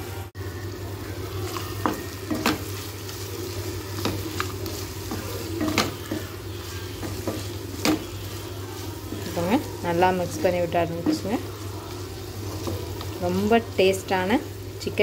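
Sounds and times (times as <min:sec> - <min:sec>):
food sizzling: 0:00.0 - 0:15.0
spatula scraping a pan: 0:01.8 - 0:13.5.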